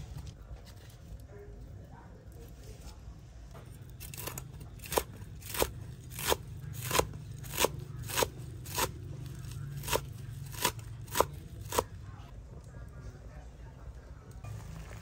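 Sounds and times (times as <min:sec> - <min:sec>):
knife chopping on wooden board: 0:04.1 - 0:08.9, 0:09.8 - 0:11.9.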